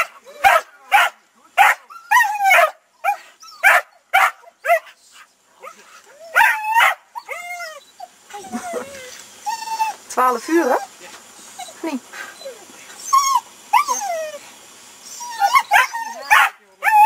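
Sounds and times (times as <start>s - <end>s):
dog barking and yipping: 0.0s - 5.0s, 5.6s - 10.0s, 15.0s - 17.0s.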